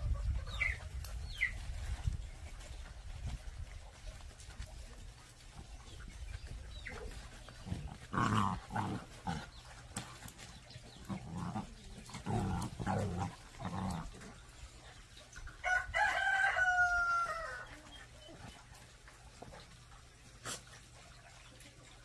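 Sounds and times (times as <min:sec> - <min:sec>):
puppies growling: 0:05.5 - 0:15.3.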